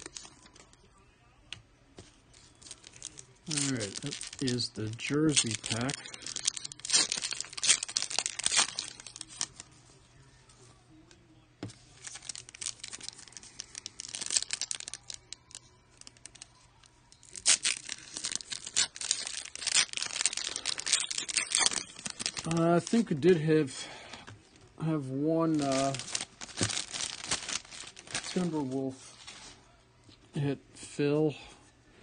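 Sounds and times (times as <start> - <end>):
foil wrapper crinkling: 0.0 - 0.8, 2.3 - 9.8, 11.7 - 24.0, 25.4 - 29.6.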